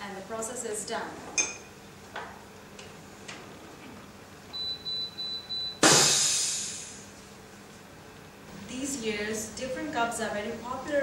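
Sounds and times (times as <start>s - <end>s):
high-pitched machine beeps: 4.6s - 5.8s
loud hiss of air: 5.8s - 7.2s.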